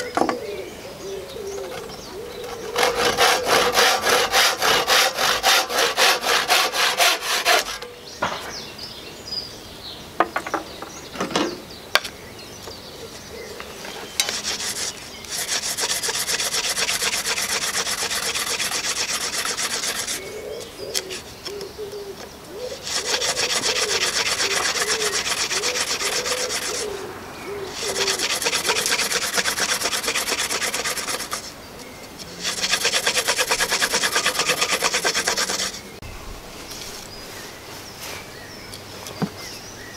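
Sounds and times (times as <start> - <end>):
wooden spindle rasping on board: 1.7 - 7.9, 14.2 - 20.3, 22.8 - 27.0, 27.7 - 31.5, 32.2 - 35.9
handsaw cutting wood: 2.4 - 7.9, 14.2 - 20.3, 22.8 - 27.1, 27.7 - 31.5, 32.3 - 36.0
sharp knocks: 8.2 - 8.7.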